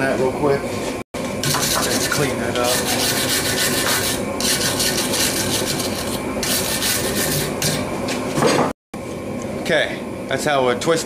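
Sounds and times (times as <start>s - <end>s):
wire brush scratching steel: 1.4s - 7.9s.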